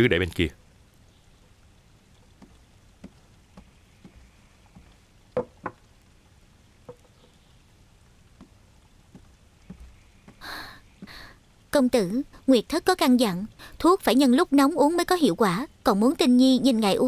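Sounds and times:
soft footsteps: 2.2 - 5.8, 8.3 - 10.4.

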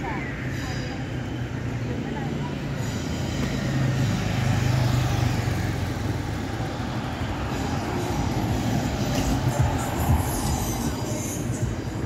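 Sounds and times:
road traffic driving past: 0.0 - 12.0
motorcycle passing: 2.4 - 12.0.

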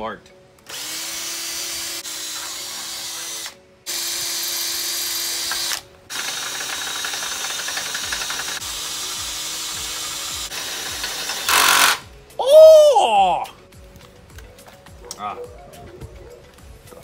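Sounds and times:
cordless drill whining: 0.6 - 12.0.

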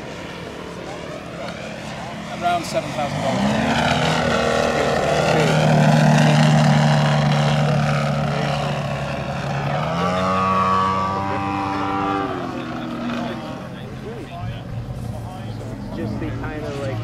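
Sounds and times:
model plane engine droning: 0.0 - 17.0.

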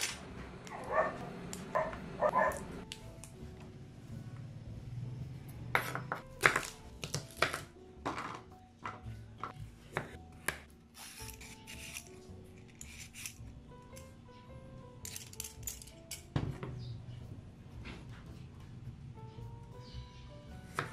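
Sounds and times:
faint background music: 0.0 - 20.9
vegetable peeler scraping carrot: 10.9 - 13.4.

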